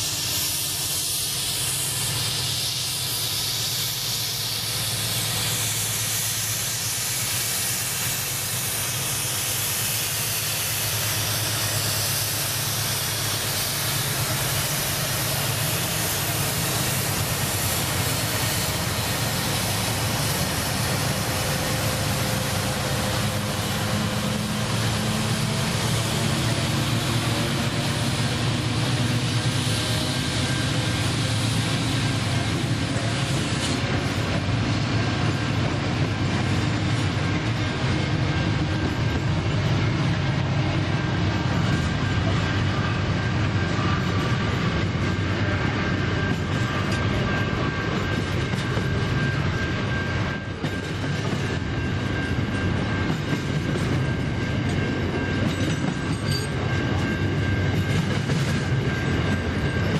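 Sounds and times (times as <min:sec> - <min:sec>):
strong hiss: 0:00.0 - 0:34.6
diesel locomotive engine drone: 0:00.0 - 0:59.9.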